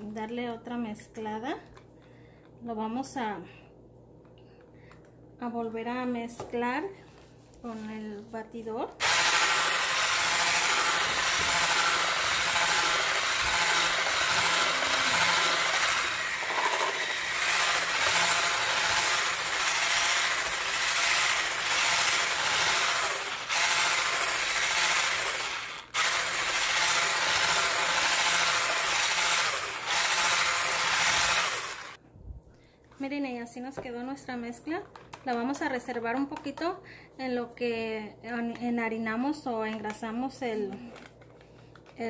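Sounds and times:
electric whisk beating batter: 0:09.0 - 0:32.0.

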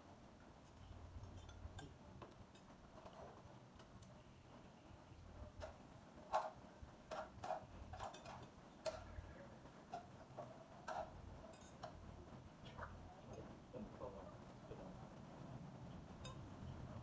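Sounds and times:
utensils clinking on dishes: 0:01.2 - 0:03.4, 0:06.3 - 0:09.2, 0:09.9 - 0:12.0, 0:16.2 - 0:16.5.

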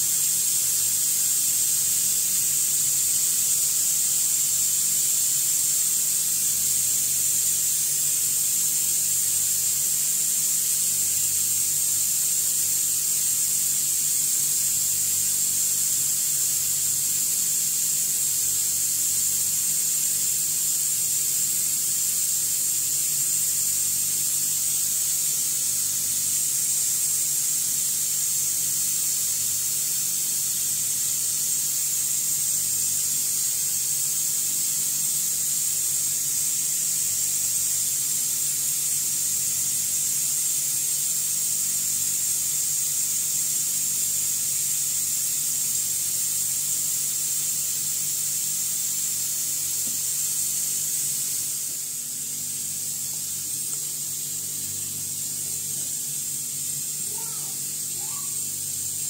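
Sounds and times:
high hiss: 0:00.0 - 0:59.0.

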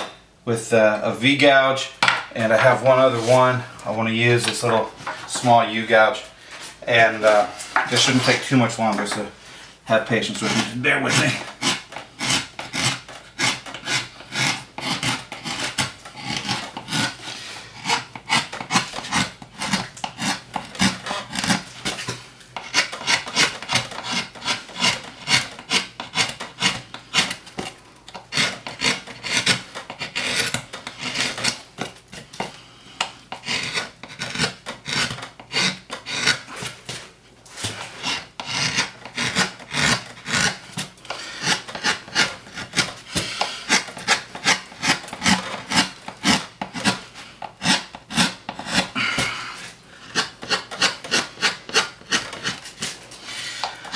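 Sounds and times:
gouge scraping wood: 0:09.9 - 0:53.9.

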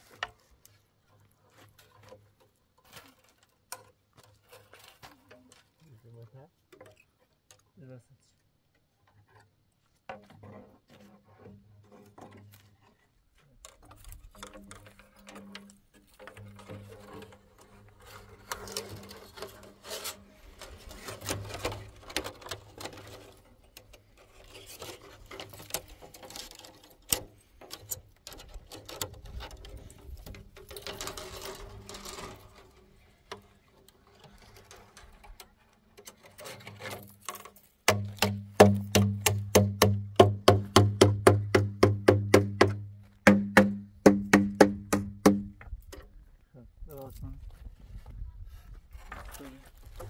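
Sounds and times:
scraping and handling sounds: 0:00.0 - 0:07.8, 0:09.0 - 0:43.2, 0:46.9 - 0:50.0
fast loud knocks: 0:37.9 - 0:45.6.

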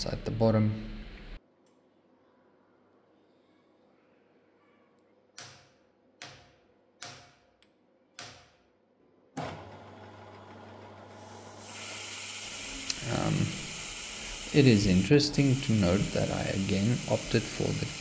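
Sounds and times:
milling machine spindle humming: 0:09.4 - 0:18.0.

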